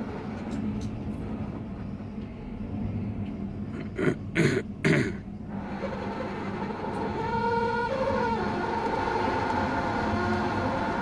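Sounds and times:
person coughing loudly: 0:04.0 - 0:05.2.

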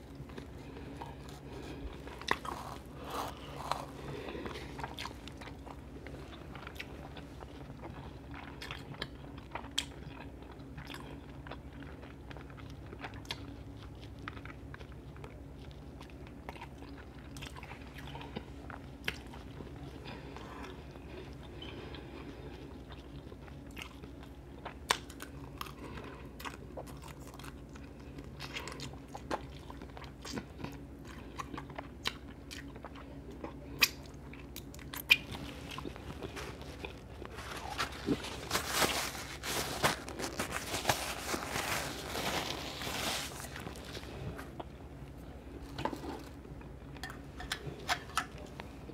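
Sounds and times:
low steady hum: 0:00.0 - 0:48.9
wet chewing and mouth smacks: 0:00.1 - 0:38.4.

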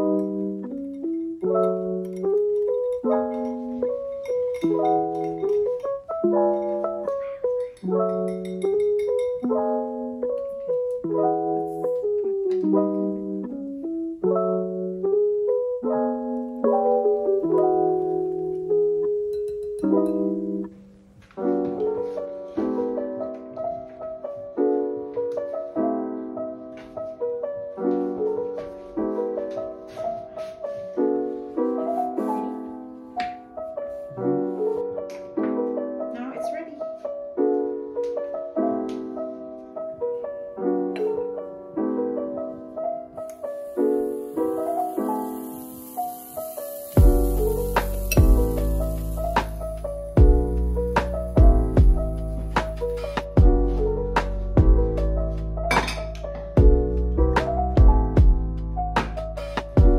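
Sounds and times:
piano chords: 0:00.0 - 0:59.9.

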